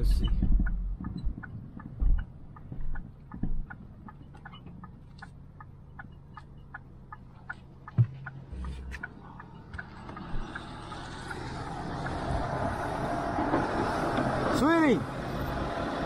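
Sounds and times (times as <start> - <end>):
turn signal clicking: 0.0 - 12.6
wheel loader engine: 3.9 - 16.0
thump: 7.9 - 8.7.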